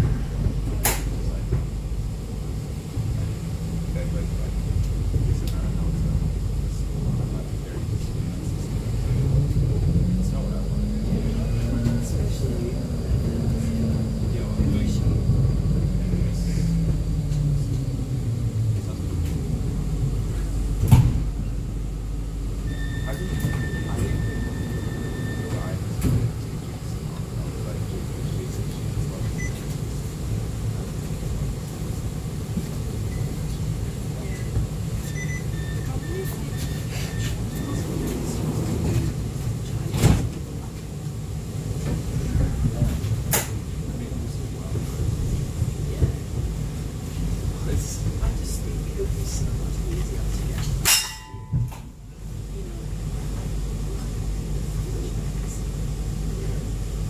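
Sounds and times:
tram interior hum and rumble: 0:00.0 - 0:57.0
faint high whine: 0:22.6 - 0:26.2.

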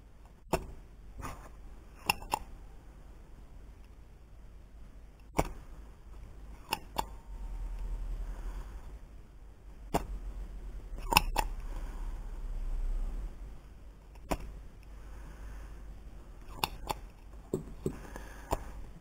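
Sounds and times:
low hum: 0:05.6 - 0:19.0.

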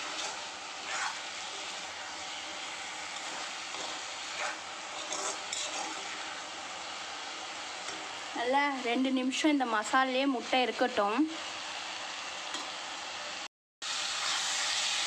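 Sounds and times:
food sizzling in a pan: 0:00.0 - 0:15.0
spoon scraping and clinking: 0:03.2 - 0:06.1.

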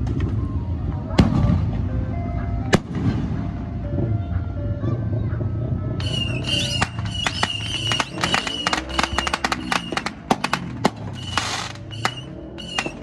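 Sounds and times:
fireworks crackling and popping: 0:06.0 - 0:13.0
firework hiss: 0:06.1 - 0:13.0.

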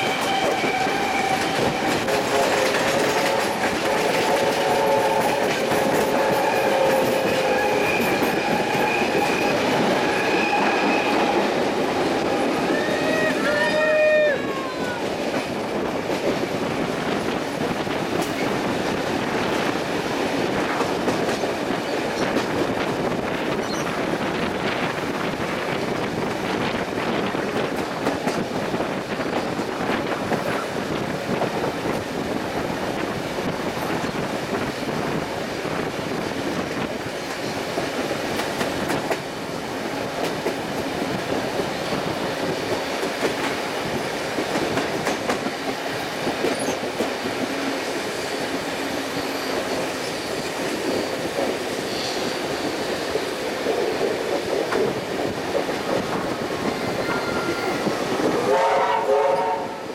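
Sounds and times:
train flange squeal: 0:00.0 - 0:11.6, 0:12.2 - 0:15.1, 0:23.6 - 0:24.0, 0:46.5 - 0:46.9, 0:48.0 - 0:53.3, 0:56.7 - 0:59.9
train wheels clicking on rail joints: 0:00.0 - 0:14.0, 0:14.8 - 0:58.8.

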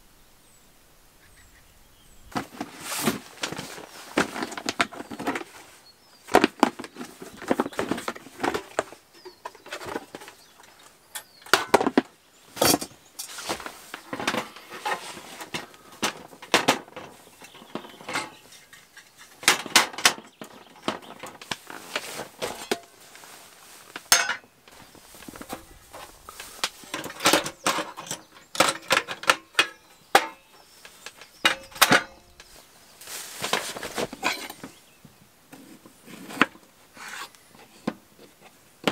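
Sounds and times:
camp stove set down on table: 0:11.1 - 0:18.4, 0:19.4 - 0:22.9, 0:24.0 - 0:24.5, 0:26.6 - 0:30.4, 0:31.1 - 0:32.3, 0:33.4 - 0:34.7.

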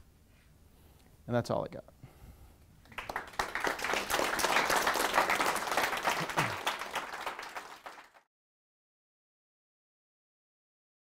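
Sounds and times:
small audience applauding: 0:02.8 - 0:08.3.

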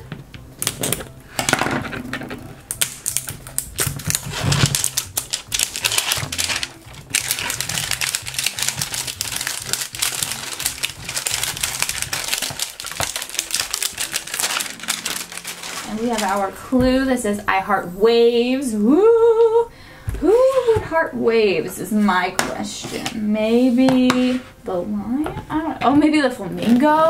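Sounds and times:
plastic shrink wrap crinkling: 0:02.6 - 0:16.7.

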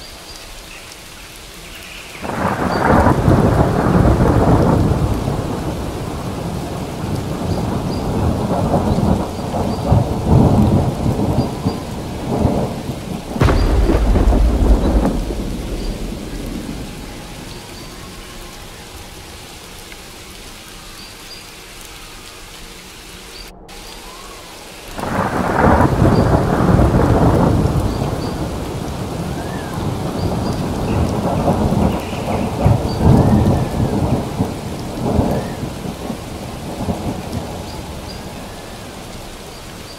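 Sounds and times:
rain: 0:00.0 - 0:39.9
rolling thunder: 0:02.2 - 0:19.4, 0:23.6 - 0:39.6.

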